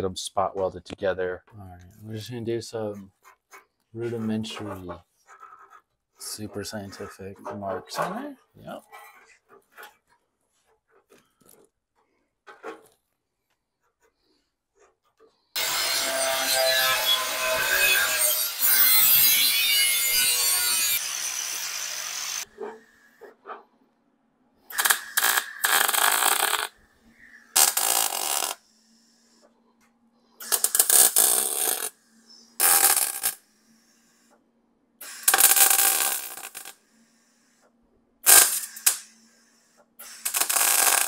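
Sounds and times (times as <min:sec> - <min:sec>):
mig welder tack welding: 0:24.7 - 0:26.7, 0:27.6 - 0:28.6, 0:30.4 - 0:31.9, 0:32.6 - 0:33.4, 0:35.0 - 0:36.8, 0:38.2 - 0:39.1, 0:40.0 - 0:41.0.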